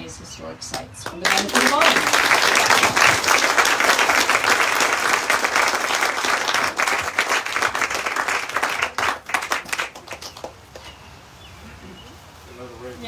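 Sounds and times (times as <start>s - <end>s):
audience applauding: 1.1s - 10.9s.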